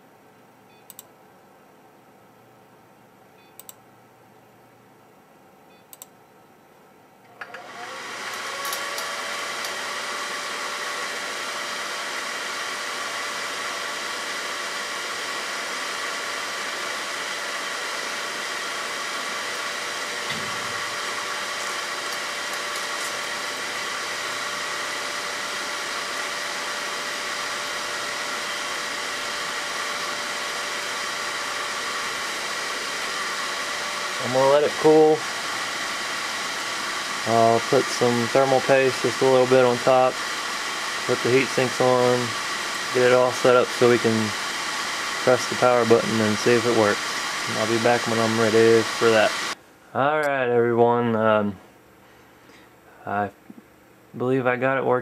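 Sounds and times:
fan spinning up whine: 0:07.2 - 0:51.6
blower fan rushing air: 0:07.4 - 0:49.7.

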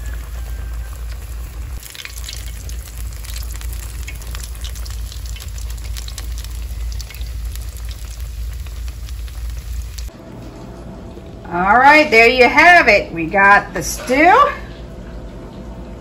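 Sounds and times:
cakes sizzling in hot oil: 0:00.0 - 0:10.1
low rumble: 0:02.5 - 0:12.2.

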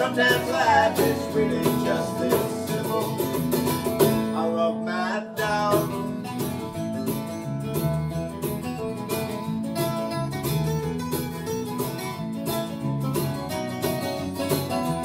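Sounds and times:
electric guitar: 0:00.0 - 0:15.0
strummed acoustic guitars: 0:00.0 - 0:15.0.

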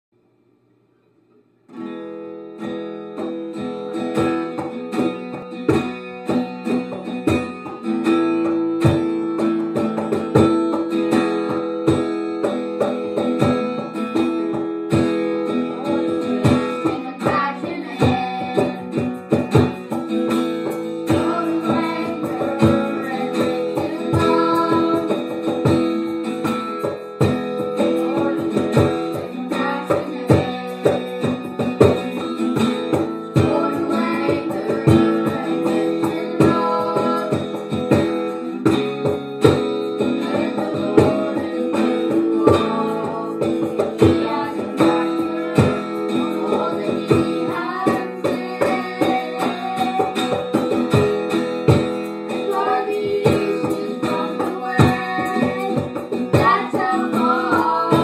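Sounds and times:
acoustic guitar strumming chords: 0:01.3 - 0:58.0
boys singing: 0:15.5 - 0:19.2, 0:21.0 - 0:26.5, 0:27.2 - 0:38.9, 0:39.7 - 0:51.0, 0:52.3 - 0:58.0.

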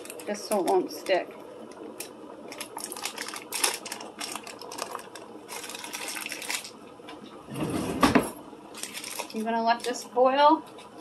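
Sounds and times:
paper wrapper crinkling: 0:00.0 - 0:06.8, 0:08.7 - 0:10.0.

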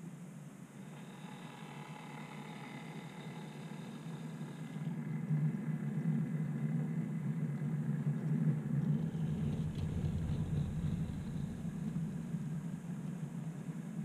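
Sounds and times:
model locomotive humming: 0:00.0 - 0:14.0
deep rumble: 0:08.3 - 0:14.0.

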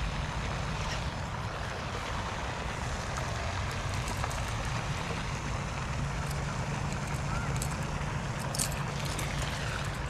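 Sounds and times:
water noise: 0:00.0 - 0:10.0
wind: 0:00.0 - 0:10.0.

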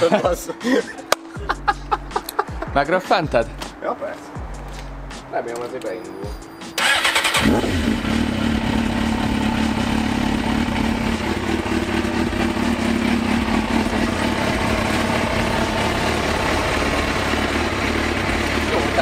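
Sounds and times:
motorcycle engine running: 0:06.8 - 0:19.0.

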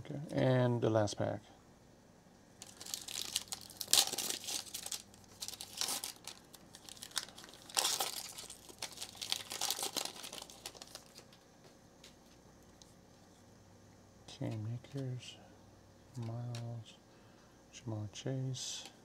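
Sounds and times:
foil wrapper crinkling and tearing: 0:02.6 - 0:11.4.

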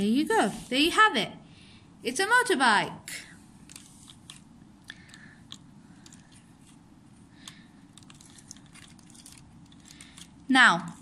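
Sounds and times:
low background hiss: 0:00.0 - 0:11.0
hands handling plastic toy: 0:03.6 - 0:11.0.

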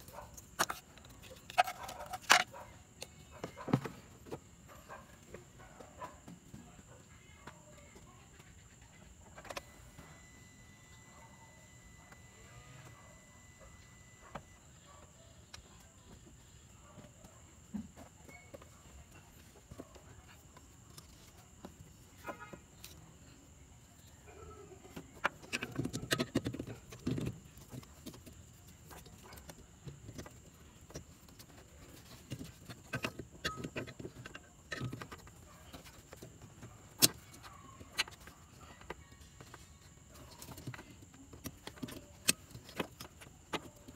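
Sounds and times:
wires rustling: 0:00.0 - 0:05.0.

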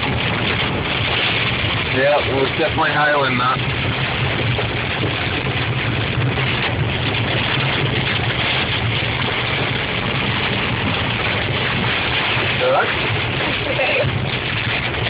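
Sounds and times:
engine and tyre drone: 0:00.0 - 0:15.0
rain and hail on car: 0:00.0 - 0:15.0.

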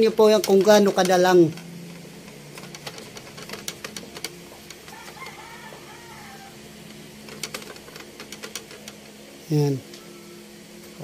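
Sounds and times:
sewing machine clicks: 0:00.0 - 0:05.4, 0:06.9 - 0:09.1
low steady hum: 0:00.0 - 0:11.0
rooster crowing faintly: 0:04.8 - 0:07.2.

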